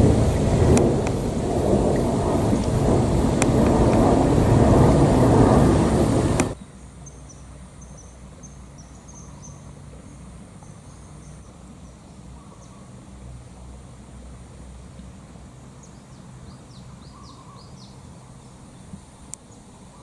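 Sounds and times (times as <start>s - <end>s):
jet airliner engines rumbling: 0.0s - 6.6s.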